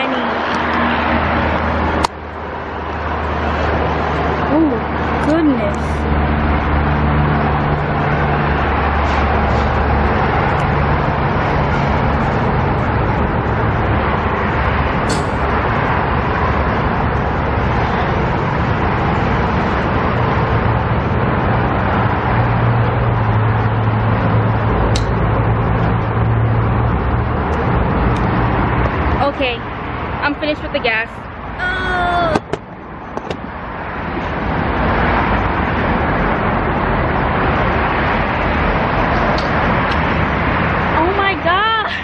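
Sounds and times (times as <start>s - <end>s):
low engine hum: 0.0s - 42.0s
fuel nozzle hissing: 15.0s - 15.5s.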